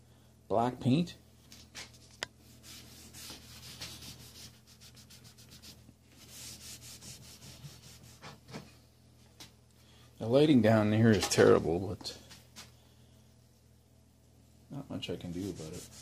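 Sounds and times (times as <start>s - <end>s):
rag wiping wooden lid: 15.2s - 16.0s.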